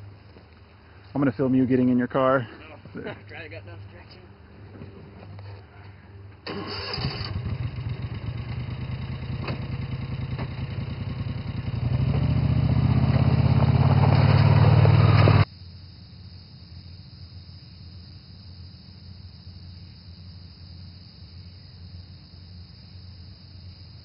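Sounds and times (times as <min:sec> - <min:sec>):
small engine starting and running: 0:06.4 - 0:15.5.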